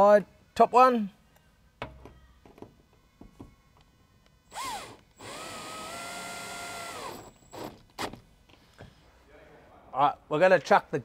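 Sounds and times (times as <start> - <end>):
cordless drill whirring: 4.5 - 7.8.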